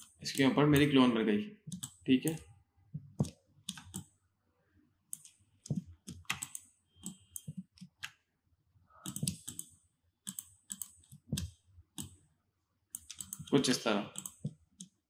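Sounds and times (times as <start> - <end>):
mouse buttons clicking: 5.1 - 8.2, 9.0 - 9.7
keyboard keys clicking: 9.1 - 9.7.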